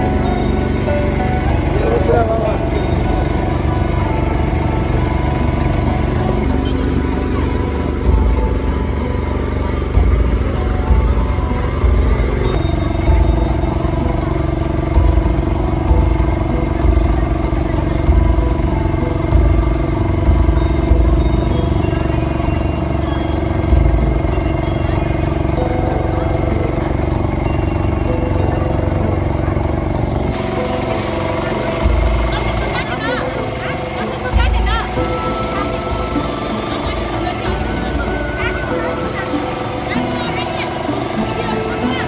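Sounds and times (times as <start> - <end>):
motorboat engine humming: 0.0 - 42.0.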